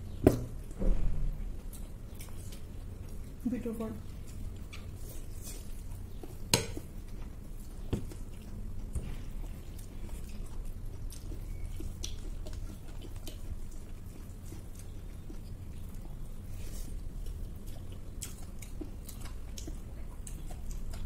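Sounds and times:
steady low hum: 0.0s - 21.0s
chewing and biting: 1.5s - 21.0s
clicks of fingers and food on plates: 4.3s - 9.1s.

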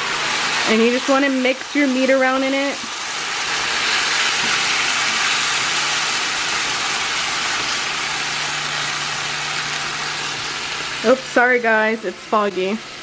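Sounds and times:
food sizzling in frying pan: 0.0s - 13.0s.

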